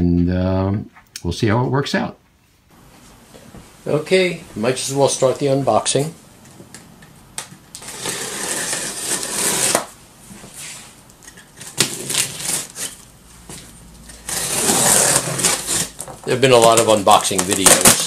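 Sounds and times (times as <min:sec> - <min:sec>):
knife blade scraping along tape: 0:07.8 - 0:09.9, 0:11.3 - 0:13.1, 0:14.1 - 0:16.0.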